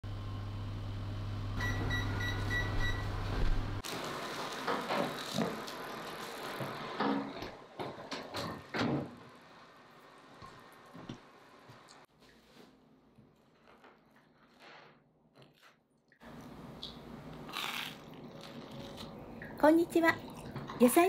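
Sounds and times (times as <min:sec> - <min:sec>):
bread sizzling in hot oil: 0:03.8 - 0:07.1.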